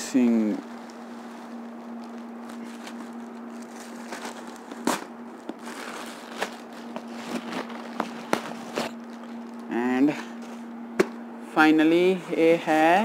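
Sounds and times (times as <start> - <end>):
plastic bag rustling and crinkling: 0.0 - 10.7
steady low hum: 0.0 - 13.0.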